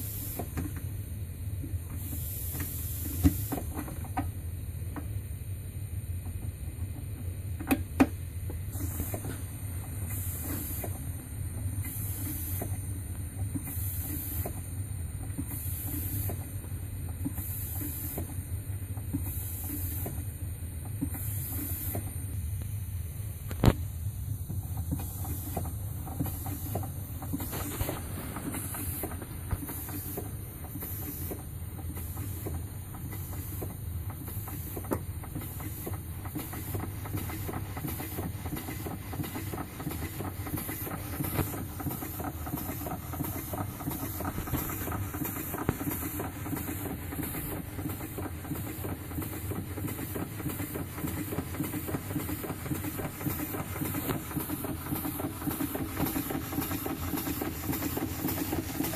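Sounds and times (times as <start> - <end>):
steam engine running: 0.0 - 58.9.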